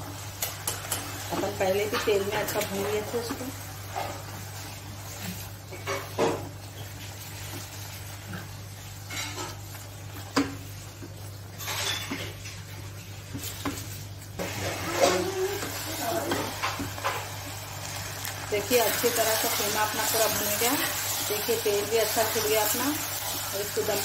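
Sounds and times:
light sizzle: 0:00.0 - 0:24.0
spatula scraping saucepan: 0:14.4 - 0:17.5.

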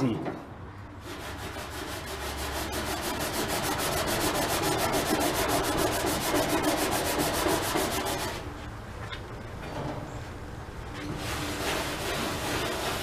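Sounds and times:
scrub pad rasping on metal: 0:01.0 - 0:08.4, 0:11.2 - 0:13.0.

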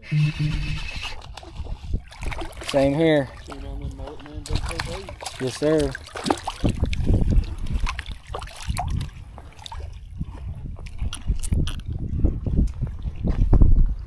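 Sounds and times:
water splashing: 0:00.0 - 0:11.8
water drips: 0:02.1 - 0:09.9.

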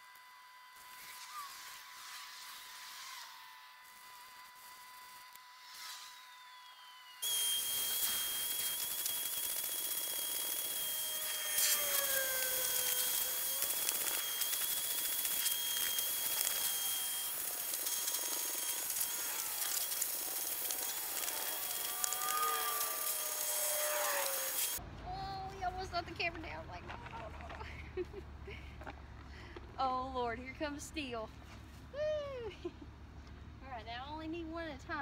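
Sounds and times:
vacuum cleaner whine: 0:00.0 - 0:24.8.

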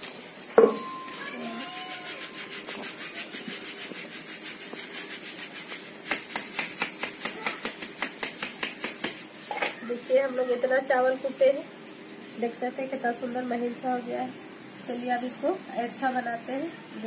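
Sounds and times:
sieve being shaken and tapped: 0:00.0 - 0:09.5.

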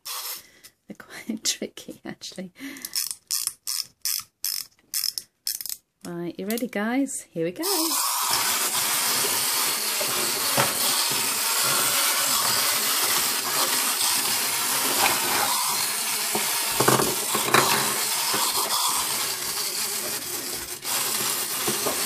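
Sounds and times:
clockwork toy motors whirring: 0:00.0 - 0:00.4, 0:02.8 - 0:05.8, 0:07.6 - 0:22.0
plastic figures knocking: 0:16.4 - 0:18.7.

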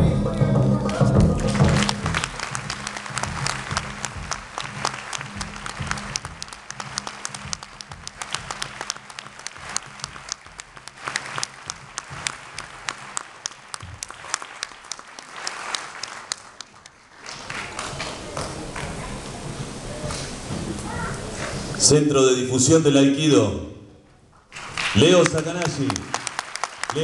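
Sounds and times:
background music with bass: 0:00.0 - 0:13.2
audience applauding: 0:00.9 - 0:21.8, 0:24.5 - 0:27.0.

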